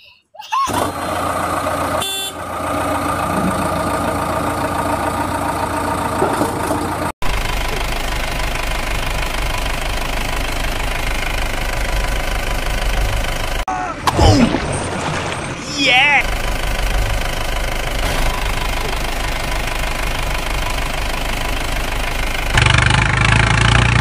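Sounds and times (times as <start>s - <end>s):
deeper engine sound: 0.7s - 24.0s
vehicle engine sound effect: 0.8s - 24.0s.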